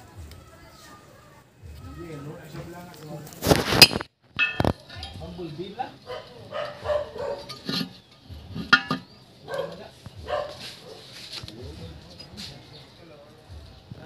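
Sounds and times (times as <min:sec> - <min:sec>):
dog barking: 0:06.0 - 0:07.7, 0:09.4 - 0:11.1.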